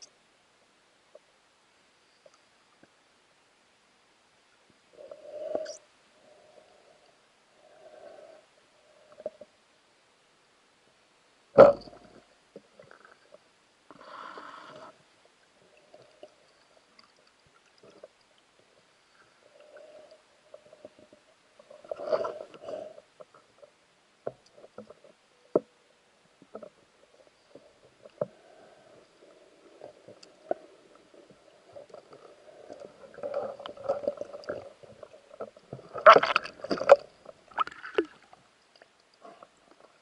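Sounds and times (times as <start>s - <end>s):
muffled underwater clicks and knocks: 11.6s - 13.4s, 24.2s - 25.8s, 26.4s - 28.4s.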